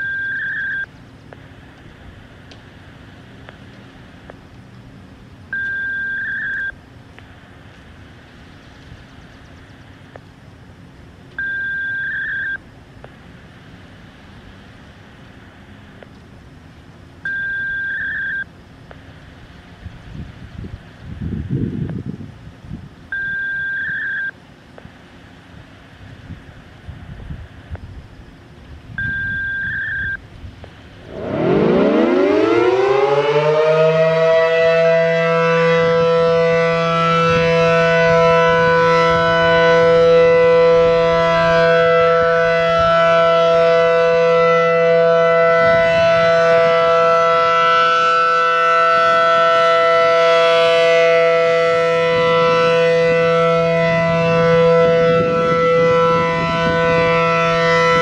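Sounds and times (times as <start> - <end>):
short beep: 0.0 - 0.9, 5.6 - 6.8, 11.4 - 12.6, 17.3 - 18.5, 23.1 - 24.3, 29.0 - 30.2
rotating warning siren: 0.0 - 21.8, 23.1 - 24.4, 25.9 - 58.0.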